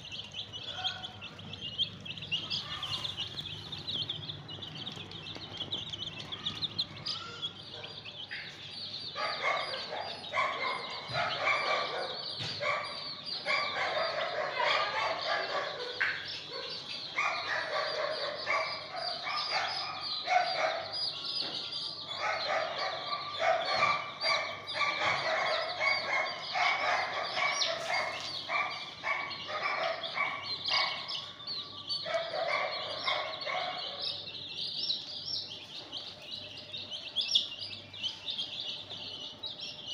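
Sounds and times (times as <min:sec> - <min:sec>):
chicks peeping: 0:00.0 - 0:39.9
hen clucking: 0:22.1 - 0:31.1.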